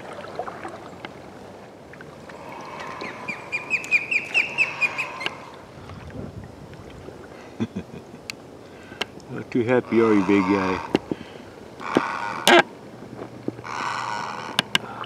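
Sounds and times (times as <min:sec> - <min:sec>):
osprey chirping: 0:02.6 - 0:05.5.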